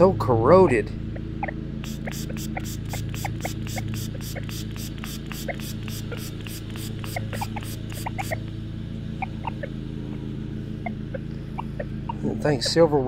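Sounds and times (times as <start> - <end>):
lawn mower engine running: 0.0 - 13.0
fast high ticking: 1.2 - 9.8.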